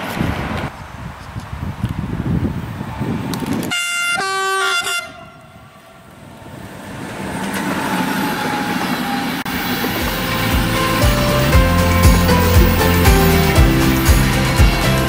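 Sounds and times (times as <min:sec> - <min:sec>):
train running on rails: 0:01.8 - 0:15.0
two-note train horn: 0:03.7 - 0:05.4, 0:09.5 - 0:14.4.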